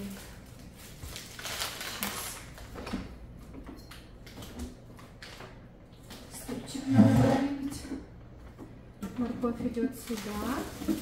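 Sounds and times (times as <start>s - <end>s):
plastic bags rustling: 0.0s - 3.1s, 9.7s - 11.0s.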